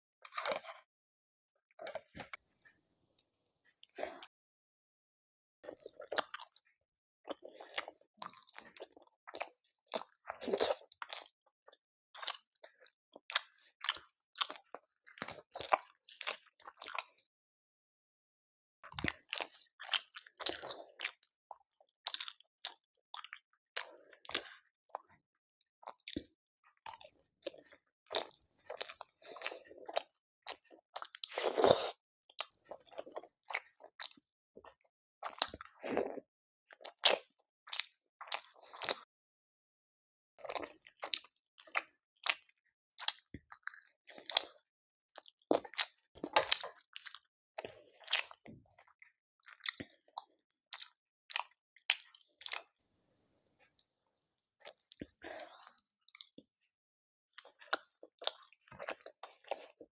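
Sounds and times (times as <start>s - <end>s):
person chewing wetly: 5.6s - 17.2s, 18.8s - 25.2s, 25.8s - 39.1s, 40.4s - 52.7s, 54.6s - 56.4s, 57.3s - 59.9s.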